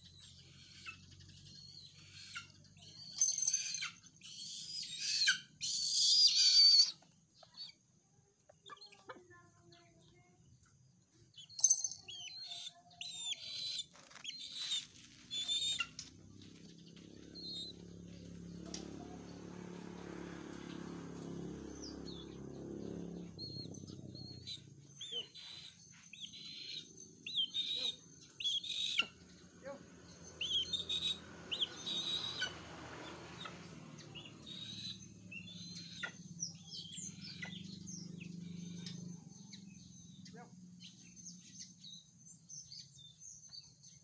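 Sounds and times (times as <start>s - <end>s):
eagle chirping calls: 0.0s - 7.8s, 11.3s - 18.0s, 23.1s - 29.4s, 30.2s - 41.7s.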